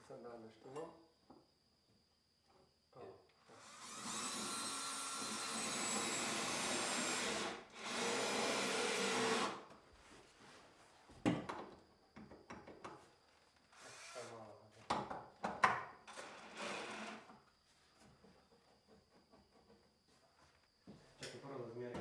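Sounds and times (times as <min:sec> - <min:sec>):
cordless drill running: 0:03.5 - 0:09.6, 0:16.2 - 0:17.2.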